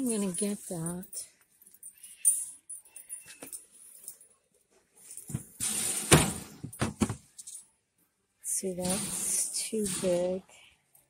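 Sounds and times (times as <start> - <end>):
boxes scraping on metal shelf: 5.6 - 6.6, 8.8 - 10.4.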